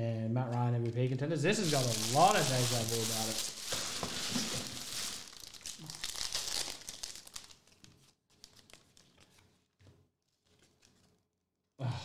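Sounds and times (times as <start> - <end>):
foil wrapper tearing and crinkling: 1.5 - 9.4
cards being handled: 1.5 - 11.1.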